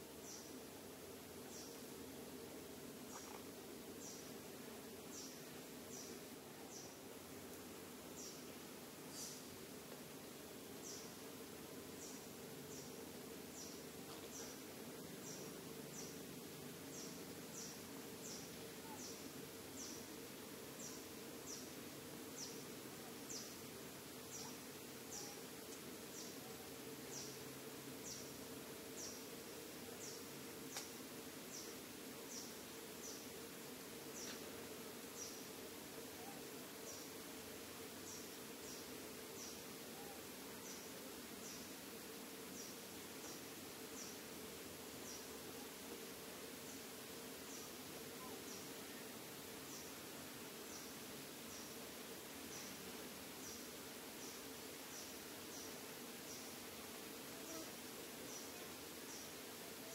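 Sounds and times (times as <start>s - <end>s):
insect drone: 0.0s - 59.9s
faint click: 30.7s - 31.0s.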